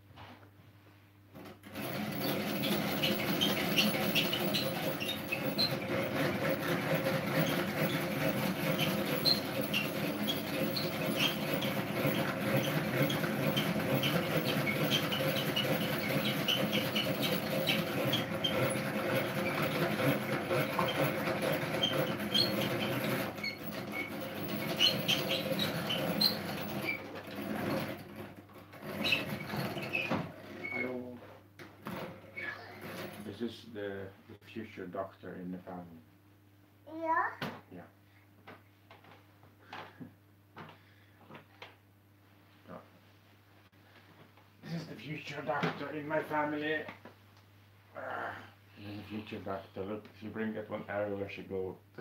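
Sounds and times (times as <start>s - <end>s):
rotary egg beater whirring: 1.4s - 30.9s.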